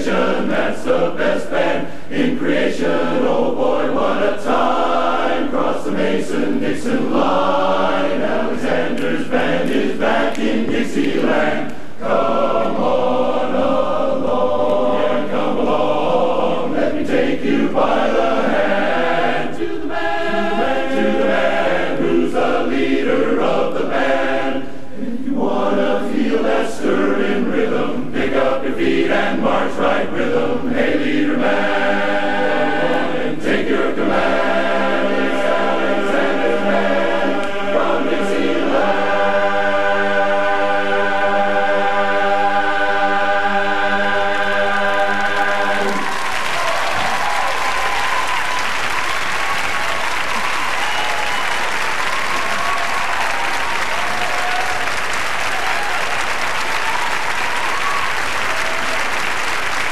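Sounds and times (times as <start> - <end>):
men's chorus singing in harmony: 0.0 - 46.8.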